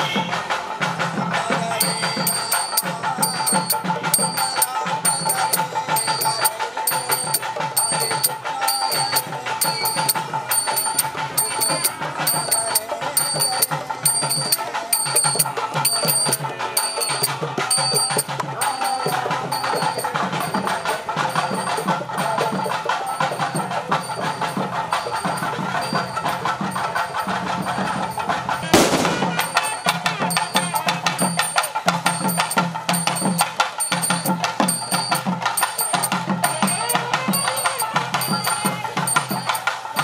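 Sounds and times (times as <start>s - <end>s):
hand drums beating: 0.0s - 40.0s
high ringing tone: 1.8s - 18.4s.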